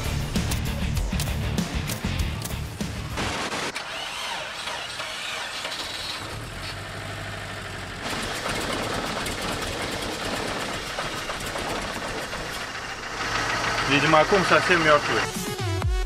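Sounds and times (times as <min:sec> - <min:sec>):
van engine running: 0:04.5 - 0:15.8.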